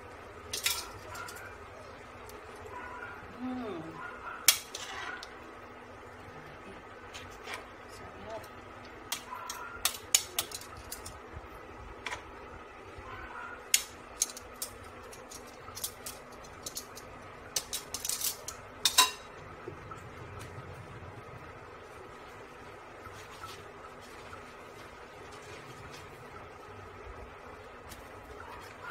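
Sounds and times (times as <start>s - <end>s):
utensil clinking on a plate: 13.8s - 19.4s.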